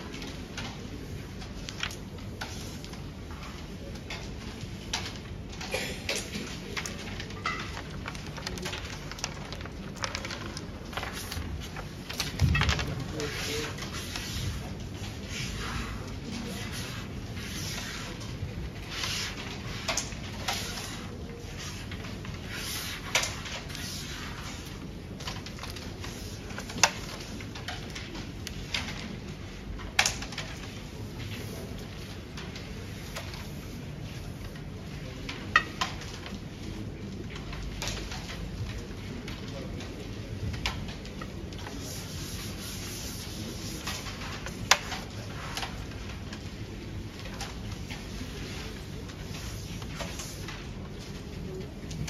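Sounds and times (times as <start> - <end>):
carrom pieces clicking on board: 16.0 - 52.0.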